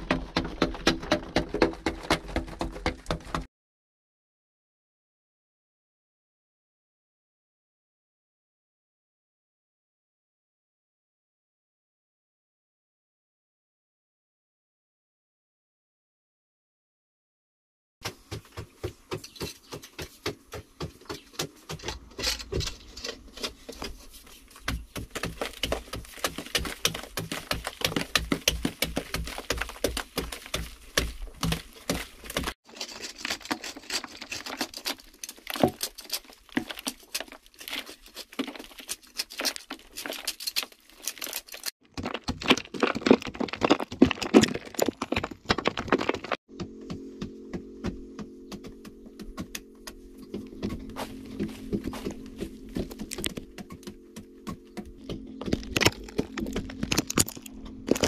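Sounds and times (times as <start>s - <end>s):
digging tools striking clay soil: 18.0s - 58.0s.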